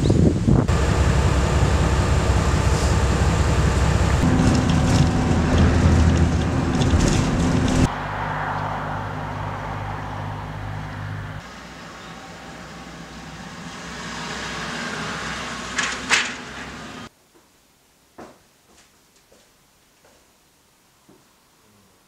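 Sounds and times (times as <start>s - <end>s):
vehicle engine and road rumble: 0.0s - 17.1s
traffic hum: 0.5s - 17.1s.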